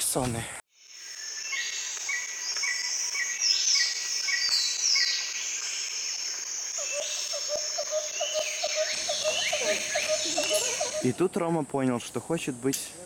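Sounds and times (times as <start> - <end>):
insects buzzing: 0.8 - 13.0
birds calling: 1.1 - 11.5.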